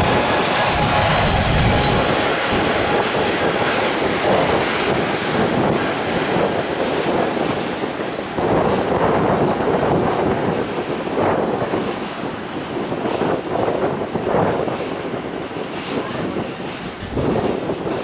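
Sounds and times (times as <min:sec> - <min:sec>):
jet engines rushing: 0:00.0 - 0:06.8.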